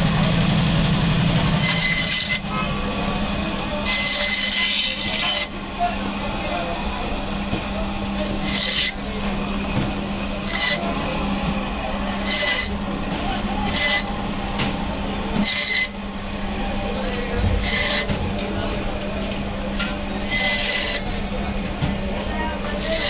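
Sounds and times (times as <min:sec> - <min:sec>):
band saw humming: 0:00.0 - 0:23.0
saw blade cutting fish: 0:01.5 - 0:02.9, 0:03.7 - 0:05.6, 0:07.6 - 0:09.2, 0:10.3 - 0:14.2, 0:15.3 - 0:16.0, 0:17.5 - 0:18.2, 0:20.0 - 0:21.2, 0:22.5 - 0:23.0.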